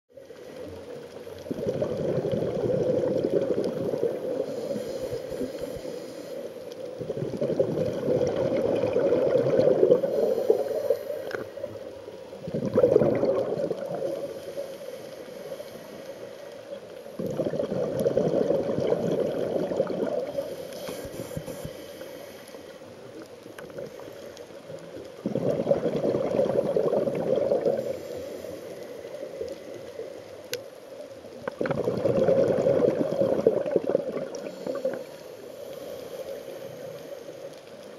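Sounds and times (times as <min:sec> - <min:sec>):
exhaled bubbles underwater: 0:01.4 - 0:05.9, 0:06.8 - 0:11.8, 0:12.4 - 0:14.6, 0:17.2 - 0:20.6, 0:23.5 - 0:28.2, 0:31.3 - 0:35.2.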